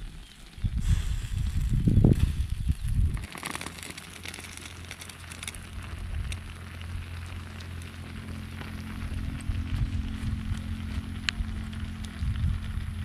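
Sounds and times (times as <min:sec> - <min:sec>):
food bubbling and sizzling: 0:00.0 - 0:13.0
loud low rumble: 0:05.7 - 0:13.0.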